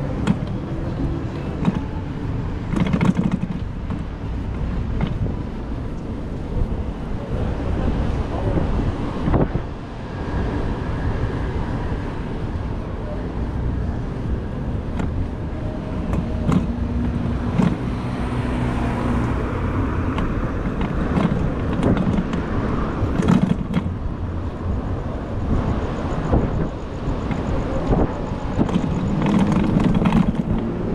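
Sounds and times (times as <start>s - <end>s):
city street traffic: 0.0s - 30.9s
wind on microphone: 0.0s - 30.9s
short knocks and rattles: 2.6s - 5.4s, 20.1s - 22.5s, 23.1s - 24.0s, 28.6s - 30.8s.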